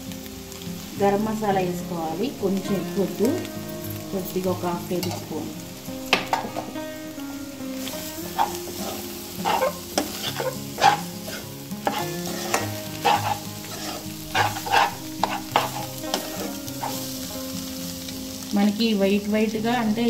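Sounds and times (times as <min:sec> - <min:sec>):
food sizzling in oil: 0:00.0 - 0:20.0
metal spoon scraping a pan: 0:04.9 - 0:05.4, 0:06.1 - 0:06.8, 0:07.8 - 0:17.3
spoon clacking against pan: 0:06.1 - 0:06.8, 0:07.8 - 0:17.3.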